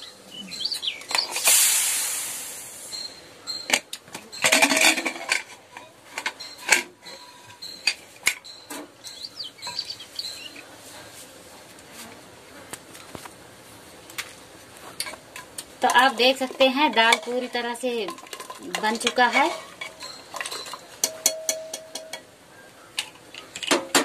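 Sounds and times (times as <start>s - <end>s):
pressure cooker steam hissing: 1.3s - 3.1s
metal lid clinking and knocking: 3.5s - 8.9s, 15.4s - 22.3s.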